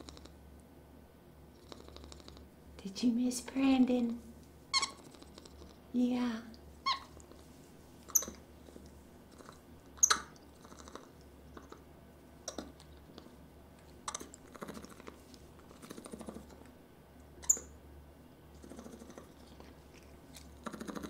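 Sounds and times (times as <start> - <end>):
chewing crunches: 18.6 - 21.0.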